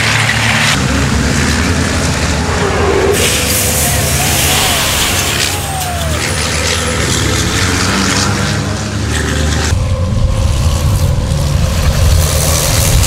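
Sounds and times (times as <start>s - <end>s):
gravel spraying and rattling: 0.0s - 6.2s, 9.1s - 13.0s
diesel engine rumbling past: 0.0s - 13.0s.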